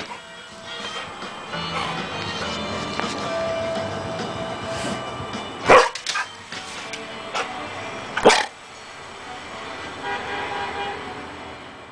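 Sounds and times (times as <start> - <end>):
background music: 0.0 - 10.3
puppy barking: 5.6 - 6.3, 8.2 - 8.5.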